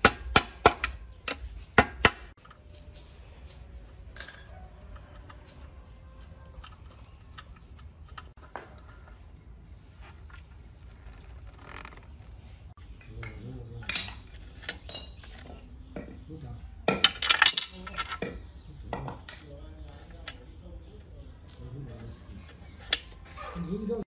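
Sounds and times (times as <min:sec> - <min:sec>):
metal parts clinking in engine crankcase: 0:16.9 - 0:18.3.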